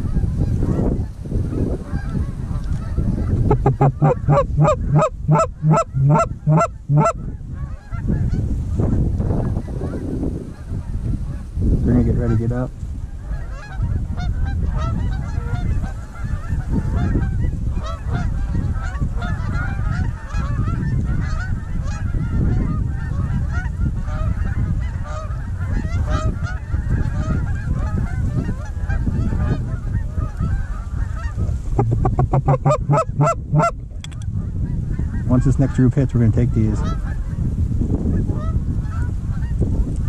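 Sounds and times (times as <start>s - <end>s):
wind buffeting microphone: 0.0s - 40.0s
geese honking: 1.9s - 8.1s, 22.6s - 35.6s.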